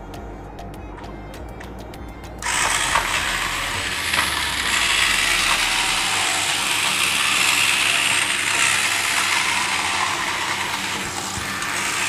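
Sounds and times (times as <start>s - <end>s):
toy motor and plastic gears running: 2.4s - 12.0s.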